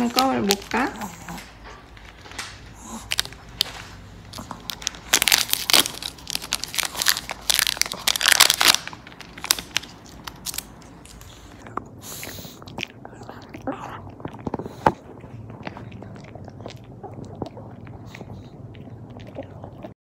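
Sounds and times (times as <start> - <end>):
plastic wrapper crinkling: 0.0 - 11.5.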